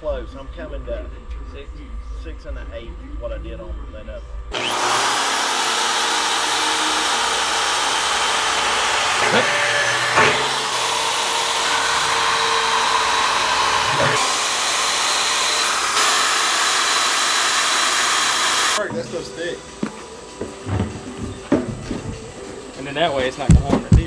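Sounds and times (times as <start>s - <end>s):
power tool grinding metal drum: 4.5s - 21.4s.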